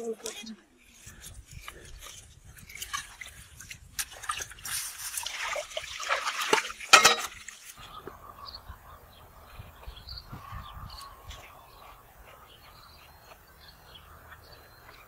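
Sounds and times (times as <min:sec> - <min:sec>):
water splashing and dripping: 0:02.0 - 0:08.2.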